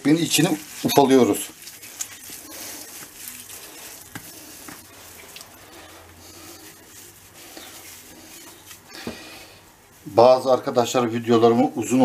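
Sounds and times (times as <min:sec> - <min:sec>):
bread being crumbled by hand: 0:00.0 - 0:09.4.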